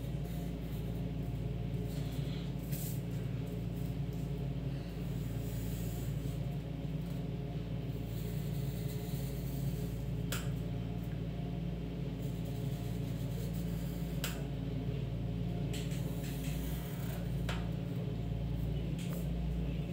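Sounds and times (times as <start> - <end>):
steady low hum: 0.0 - 19.9
pencil scratching on paper: 5.0 - 6.4, 7.9 - 10.1, 12.2 - 14.2.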